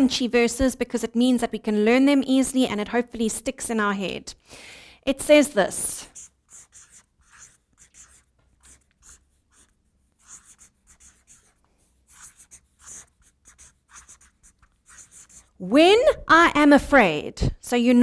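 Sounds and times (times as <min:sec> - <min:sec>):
marker pen scratching on paper: 0:05.8 - 0:15.7.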